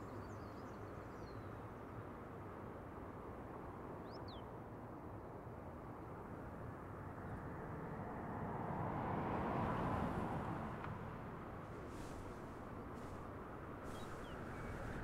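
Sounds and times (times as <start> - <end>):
car passing by: 7.4 - 15.0
traffic hum: 7.8 - 15.0.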